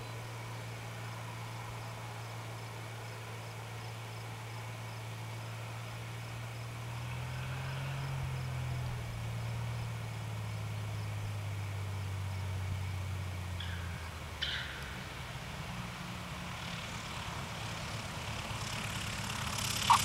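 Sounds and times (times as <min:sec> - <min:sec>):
insects chirping: 0:00.0 - 0:14.2, 0:19.6 - 0:20.0
propeller plane engine droning: 0:00.0 - 0:20.0
wheels squeaking on runway: 0:18.7 - 0:20.0.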